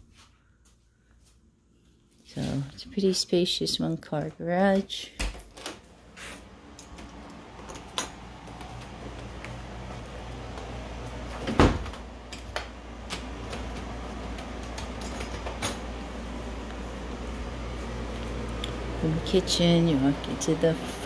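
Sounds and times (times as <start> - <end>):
steady low hum: 0.0 - 21.0
door banging shut: 11.4 - 12.0.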